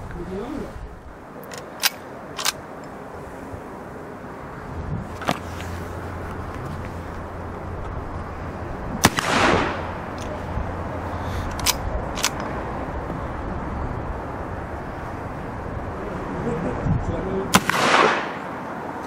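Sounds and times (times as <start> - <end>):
rifle lever clicks: 1.4 - 2.6
rifle shot with echo: 9.0 - 9.9, 17.5 - 18.5.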